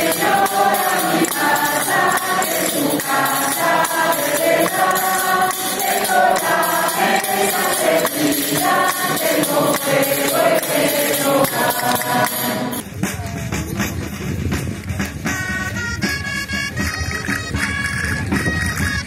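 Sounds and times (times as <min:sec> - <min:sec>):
tambourines beating: 0:00.0 - 0:12.8
women's choir singing: 0:00.0 - 0:12.8.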